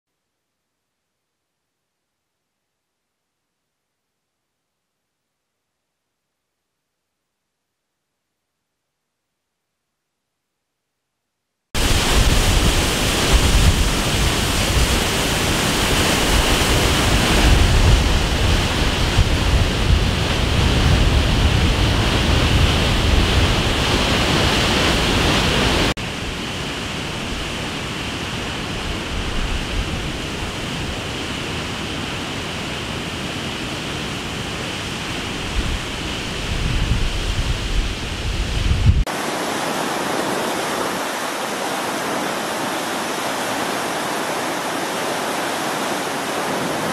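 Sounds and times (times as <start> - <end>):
floodwater roaring: 11.8 - 46.9.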